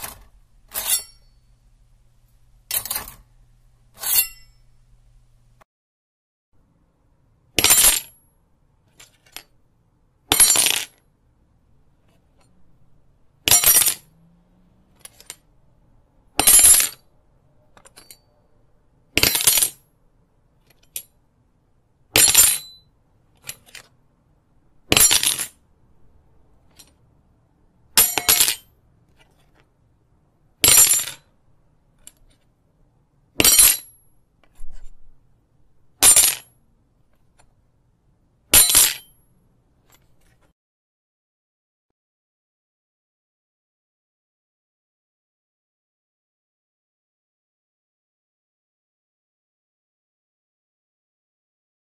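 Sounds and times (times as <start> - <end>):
metal knife clattering on floor: 0.0 - 1.6, 2.7 - 3.2, 4.0 - 4.7, 13.5 - 14.0, 17.8 - 18.3, 28.0 - 28.7, 30.6 - 31.2, 33.4 - 34.0, 36.0 - 36.5, 38.6 - 39.1.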